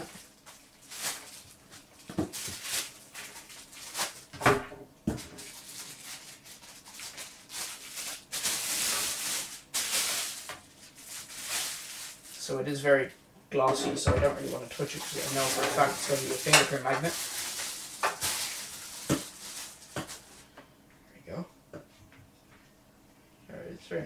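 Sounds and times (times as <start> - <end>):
plastic wrapping crinkling: 0.0 - 4.4, 5.1 - 12.6, 14.3 - 20.5.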